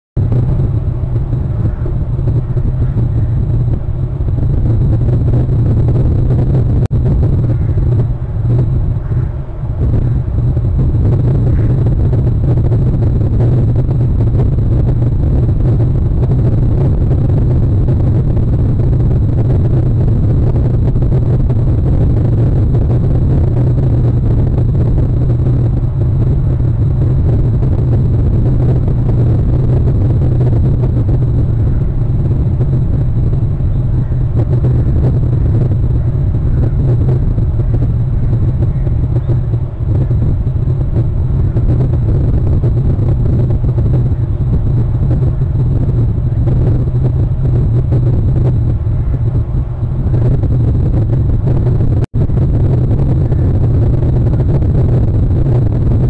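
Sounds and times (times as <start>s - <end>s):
loud low rumble: 0.0s - 56.0s.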